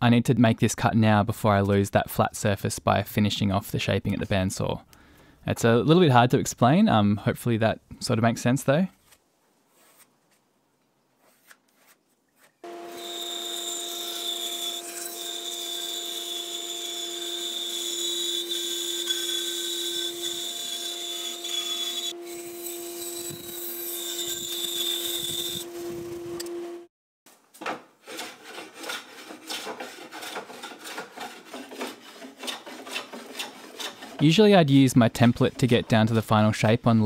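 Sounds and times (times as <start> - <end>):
bandsaw cutting wood: 12.6 - 26.0, 28.0 - 34.3.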